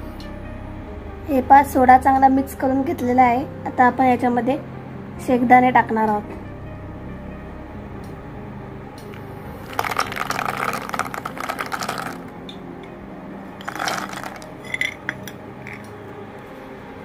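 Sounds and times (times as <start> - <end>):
peanuts rattling into a bowl: 9.6 - 12.3, 13.6 - 15.9
clinks: 13.7 - 15.9.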